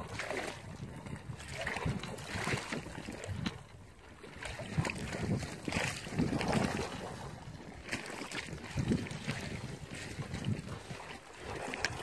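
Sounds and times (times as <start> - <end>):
fish thrashing in water: 0.0 - 3.6, 4.3 - 12.0
river water lapping at shore: 0.0 - 12.0
wind on microphone: 0.0 - 12.0.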